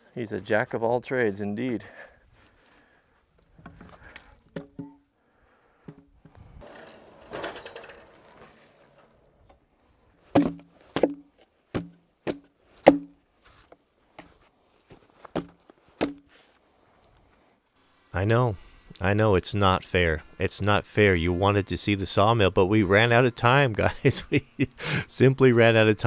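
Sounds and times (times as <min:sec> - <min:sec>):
scraping rustle: 0:06.4 - 0:09.6
log knocking on wooden blocks: 0:10.3 - 0:13.2, 0:15.3 - 0:16.3.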